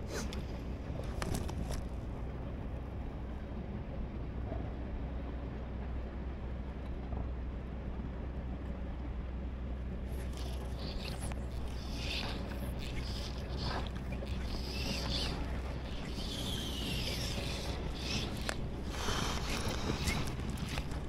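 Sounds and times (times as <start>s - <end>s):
faint clicks: 10.2s - 21.0s.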